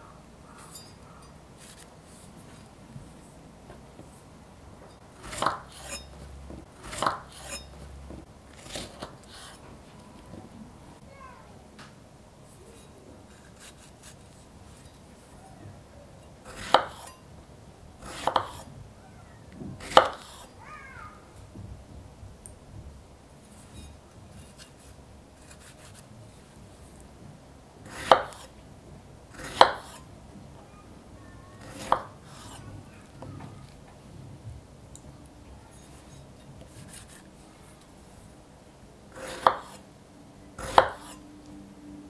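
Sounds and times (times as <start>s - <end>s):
knife slicing strawberries: 0.5s - 2.7s, 5.1s - 9.6s, 12.8s - 15.3s, 16.4s - 17.2s, 18.0s - 18.7s, 19.8s - 20.5s, 23.4s - 27.0s, 27.8s - 28.5s, 29.3s - 30.1s, 31.6s - 32.7s, 35.7s - 37.9s, 39.1s - 39.8s, 40.6s - 41.2s.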